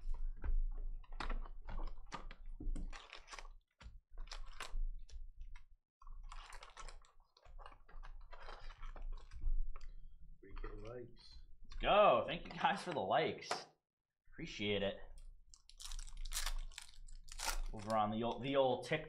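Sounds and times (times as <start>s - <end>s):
foil card packs crinkling: 6.2s - 9.9s, 15.6s - 18.6s.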